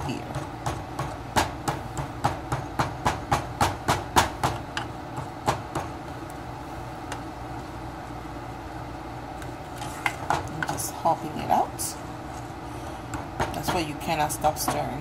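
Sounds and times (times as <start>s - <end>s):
steady low hum: 0.0s - 15.0s
wooden spoon scraping metal saucepan: 9.6s - 10.7s.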